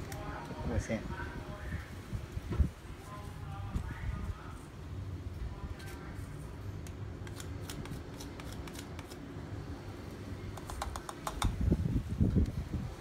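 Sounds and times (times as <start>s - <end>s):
stick tapping plastic jar: 10.6s - 11.6s.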